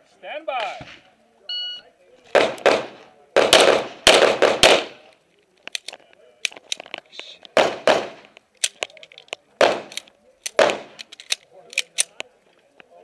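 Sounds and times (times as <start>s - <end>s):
sharp clicks: 8.2s - 12.3s.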